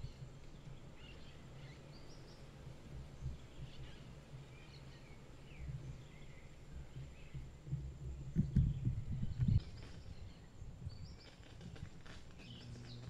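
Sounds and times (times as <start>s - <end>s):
bird chirps: 12.3s - 13.0s.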